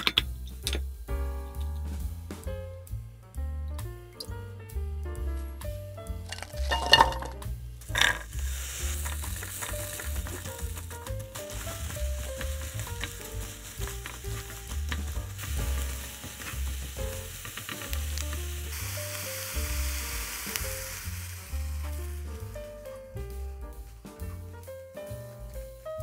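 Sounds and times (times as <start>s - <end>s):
light background music: 0.0s - 26.0s
spatula scraping and tapping pan: 6.3s - 7.3s, 7.9s - 18.3s
egg poured into pan: 6.3s - 22.3s
food sizzling in a frying pan: 6.3s - 23.0s.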